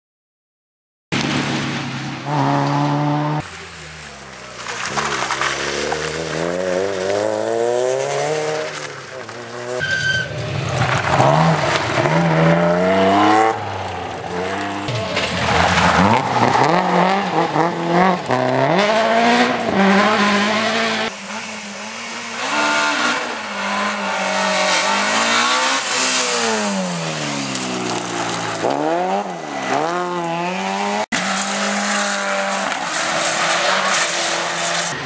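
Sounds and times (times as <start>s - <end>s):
rally car engines revving past: 1.2s - 35.0s
tyres scrabbling on gravel: 3.5s - 12.3s, 25.6s - 30.5s.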